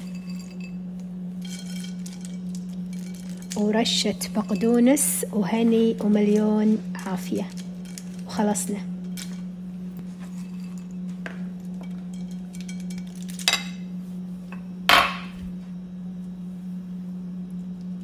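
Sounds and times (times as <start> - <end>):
steady low hum: 0.0 - 18.0
knocks on cookware: 14.9 - 15.4.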